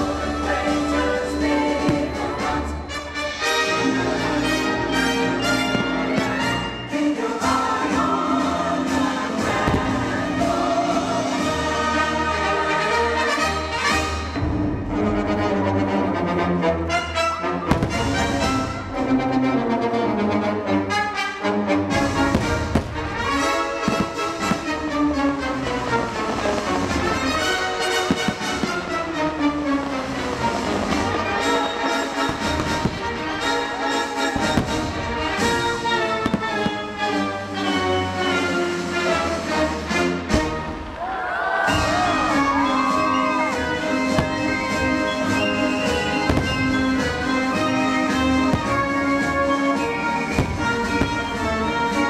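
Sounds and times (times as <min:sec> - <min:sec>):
fireworks bursting: 0:00.0 - 0:14.9, 0:17.7 - 0:19.0, 0:21.9 - 0:25.1, 0:25.9 - 0:41.0, 0:41.7 - 0:52.0
orchestral music with brass: 0:00.0 - 0:52.0
firework bang: 0:17.7 - 0:18.6, 0:34.3 - 0:36.8.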